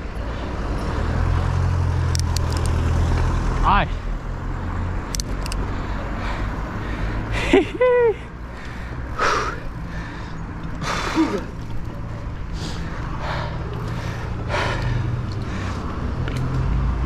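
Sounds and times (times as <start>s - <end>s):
person gasping breaths: 8.5s - 11.4s.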